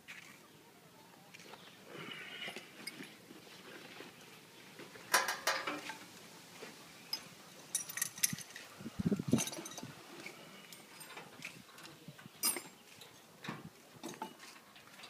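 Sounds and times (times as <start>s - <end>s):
metal parts clinking and clanking: 5.1s - 6.0s, 7.1s - 8.7s, 9.3s - 11.3s, 12.4s - 13.2s.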